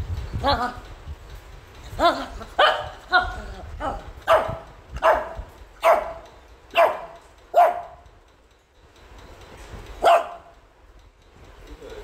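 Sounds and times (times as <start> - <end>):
dog barking angrily: 2.2 - 8.0, 10.0 - 10.5.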